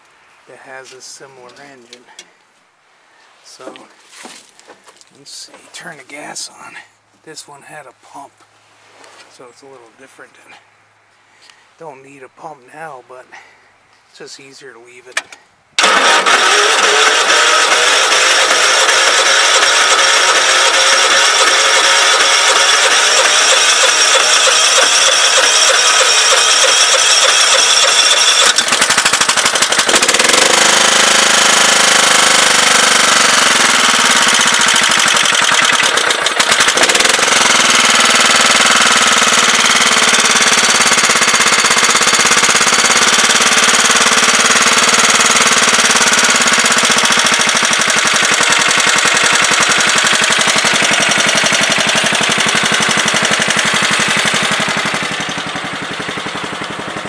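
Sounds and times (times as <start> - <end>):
electric starter cranking engine: 15.8 - 57.0
engine running with rapid clatter: 15.8 - 57.0.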